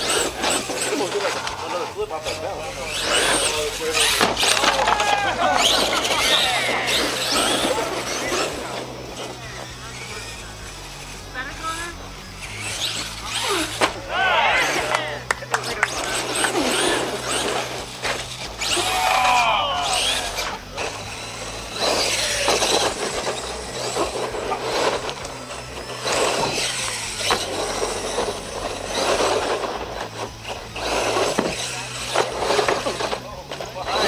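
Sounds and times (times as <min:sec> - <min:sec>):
electric motor whining: 0:00.0 - 0:34.0
knocks from landings: 0:02.9 - 0:09.3.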